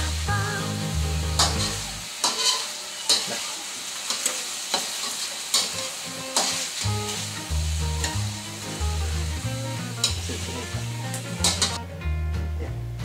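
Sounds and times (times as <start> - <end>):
chicken sizzling in oil: 0.0 - 11.8
metal spatula scraping a wok: 1.4 - 8.6, 11.2 - 11.8.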